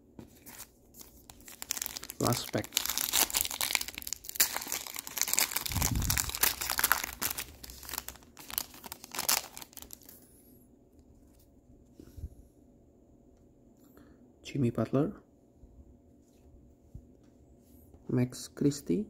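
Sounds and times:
foil wrapper tearing and crinkling: 0.4s - 10.1s.

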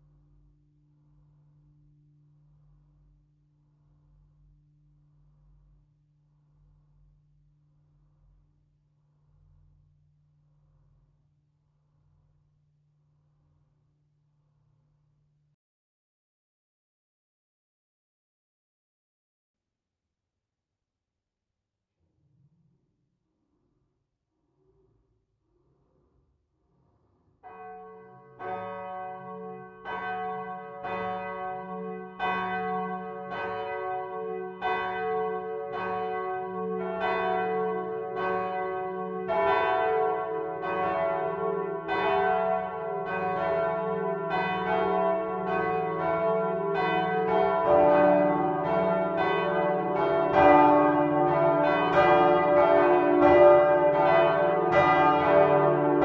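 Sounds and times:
swinging church bells ringing: 27.5s - 56.0s.

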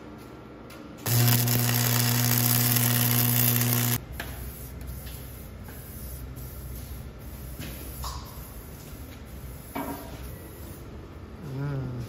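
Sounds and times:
arc welder buzzing: 1.0s - 4.0s.

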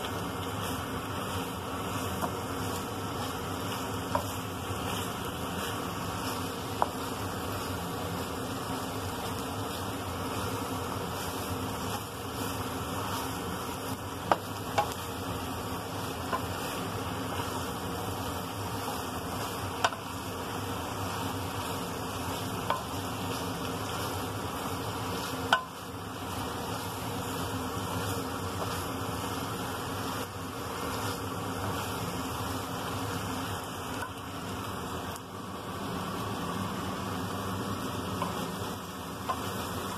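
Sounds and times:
stir-fry sizzling in pan: 0.0s - 39.9s
chopsticks knocking on pan: 25.5s - 25.8s.

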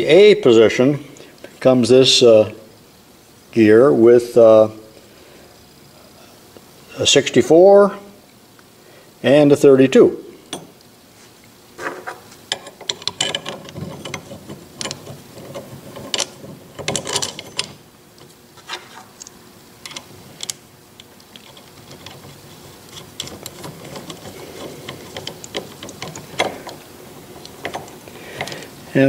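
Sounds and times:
metal gears clicking and clinking: 12.5s - 17.8s.

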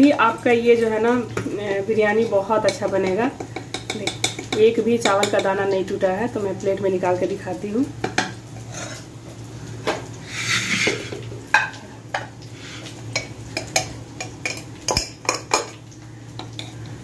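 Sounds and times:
spoon clinking on metal pot: 2.6s - 5.6s
spoon scraping rustle: 8.6s - 9.1s, 10.2s - 11.2s.

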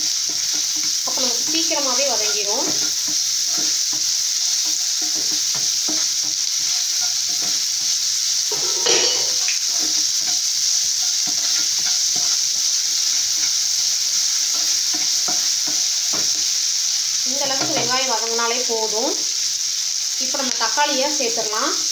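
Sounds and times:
spatula scraping and tapping pan: 0.0s - 16.7s, 17.4s - 18.0s
onions sizzling in a pan: 0.0s - 21.9s.

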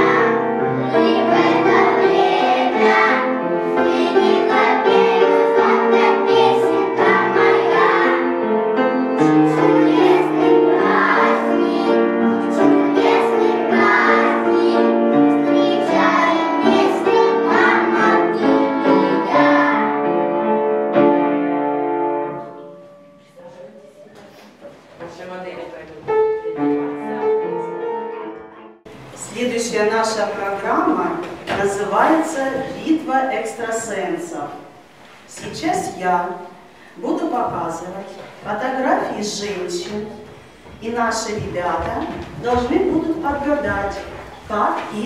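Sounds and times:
children singing: 0.0s - 8.6s, 9.2s - 20.2s
instrumental accompaniment: 0.0s - 29.4s.

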